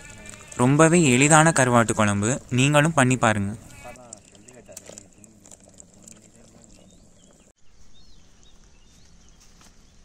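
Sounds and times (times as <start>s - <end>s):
small birds chirping: 3.6s - 10.0s.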